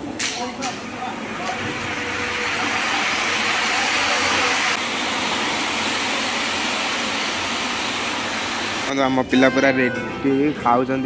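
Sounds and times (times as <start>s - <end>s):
spark fountains hissing: 0.5s - 8.9s.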